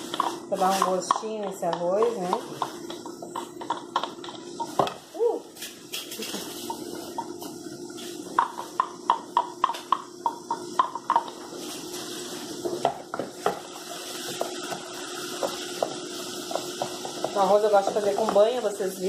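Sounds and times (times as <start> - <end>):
spoon knocking and scraping pot: 0.0 - 5.0, 8.3 - 11.6, 12.6 - 18.8
wooden spoon tapping glass bowl: 8.4 - 11.4.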